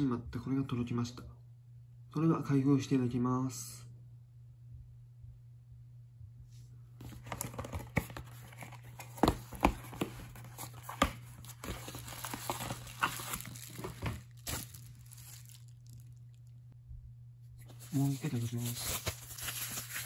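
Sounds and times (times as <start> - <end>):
steady low hum: 0.0 - 20.0
cardboard tearing and rustling: 7.0 - 16.0, 17.7 - 20.0.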